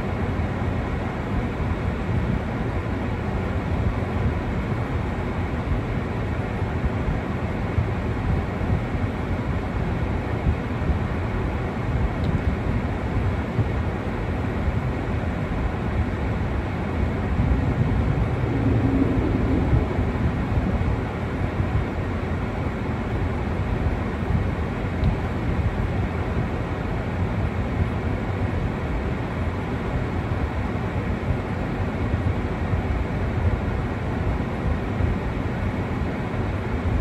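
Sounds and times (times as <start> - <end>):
faint hum: 15.0 - 22.6.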